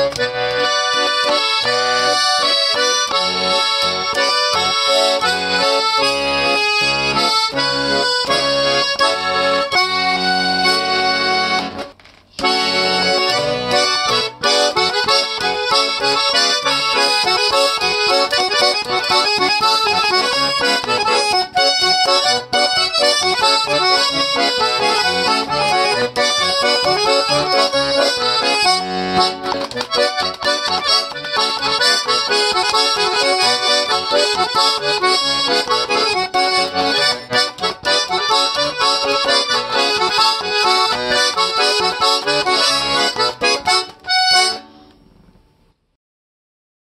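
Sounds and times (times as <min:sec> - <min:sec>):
button accordion playing lively tune: 0:00.0 - 0:44.8.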